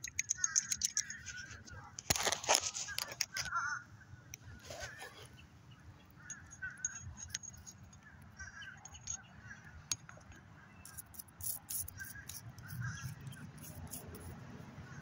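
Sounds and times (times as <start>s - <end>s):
toothbrush scrubbing metal buckle: 0.0s - 1.6s, 6.3s - 8.0s, 8.8s - 9.2s, 10.8s - 14.4s
birds calling: 0.0s - 14.0s.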